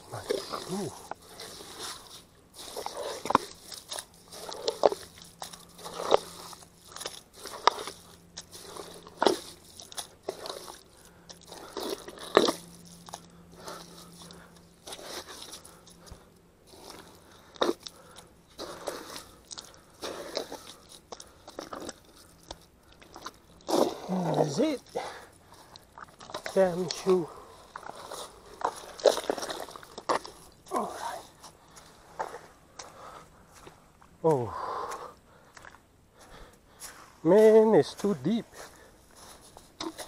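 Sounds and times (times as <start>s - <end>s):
mud squelching and sucking: 0.0s - 32.5s, 38.7s - 40.0s.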